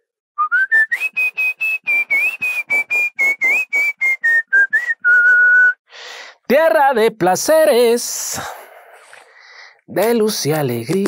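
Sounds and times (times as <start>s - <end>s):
man whistling a tune: 0.4s - 5.8s.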